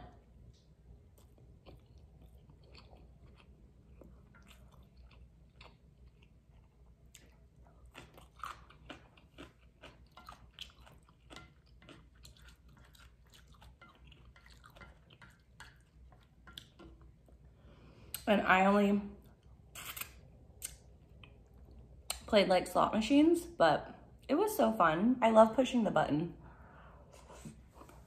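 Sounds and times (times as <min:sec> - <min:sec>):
close-miked chewing: 0:01.0 - 0:17.4.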